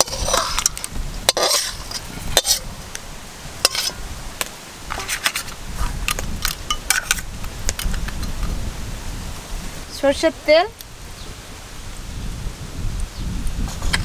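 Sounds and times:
metal spatula scraping a plate: 0.0 - 2.7, 3.6 - 4.0, 4.9 - 5.6.

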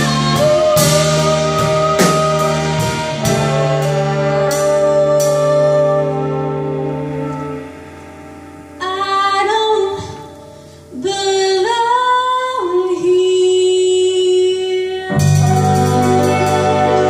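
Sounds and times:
woman singing: 0.0 - 6.6, 8.8 - 17.0
rock band playing: 0.0 - 9.0, 15.1 - 17.0.

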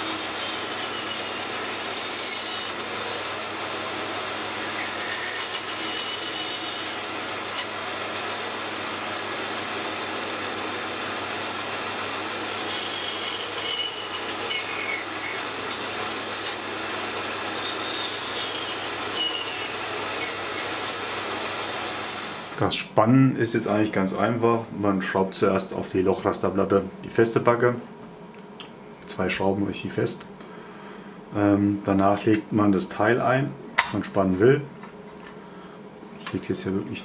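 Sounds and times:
high blade whines: 0.0 - 9.0, 10.0 - 21.2
band saw cutting metal: 0.0 - 22.6.

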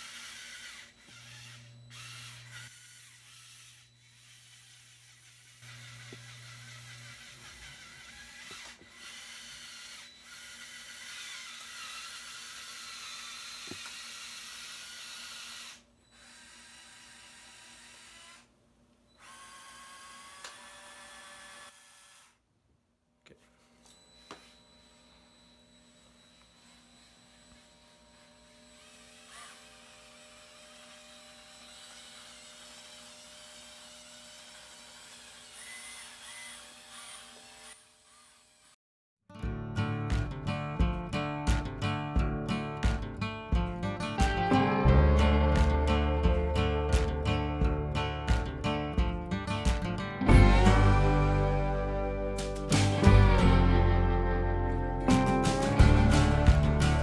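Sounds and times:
small electric motors whirring: 0.0 - 18.5, 19.2 - 22.4, 23.6 - 38.8.

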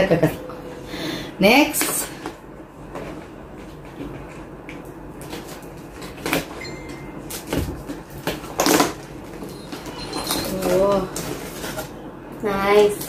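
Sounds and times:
paper bag rustling: 5.1 - 12.0.

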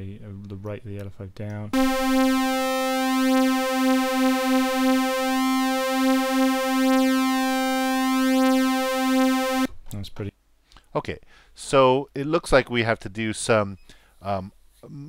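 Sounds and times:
wavering synthesizer note: 1.8 - 9.7.

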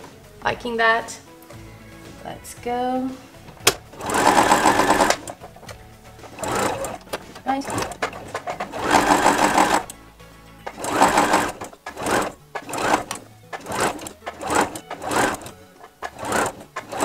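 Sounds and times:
sewing machine stitching: 3.7 - 5.6, 6.2 - 9.9, 10.6 - 17.0.

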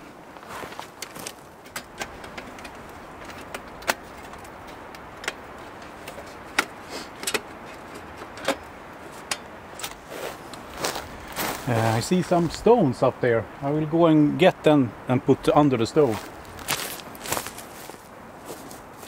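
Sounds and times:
metal stove clinking: 1.6 - 10.0.

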